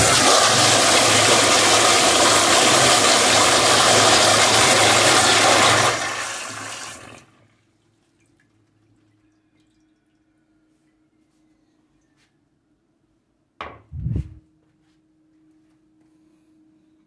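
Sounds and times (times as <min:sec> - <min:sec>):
toilet flushing: 0:00.0 - 0:09.2.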